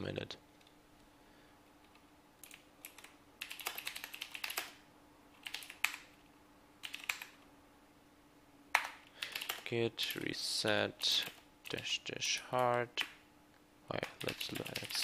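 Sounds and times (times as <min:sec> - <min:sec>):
typing on computer keyboard: 0:02.4 - 0:04.8, 0:05.4 - 0:06.1, 0:06.8 - 0:07.4, 0:08.8 - 0:09.6, 0:14.0 - 0:15.0.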